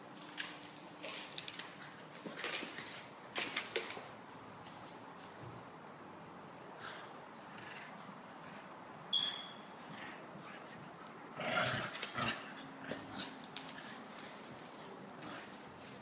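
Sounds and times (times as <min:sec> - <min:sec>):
dog growling: 0:11.3 - 0:13.4.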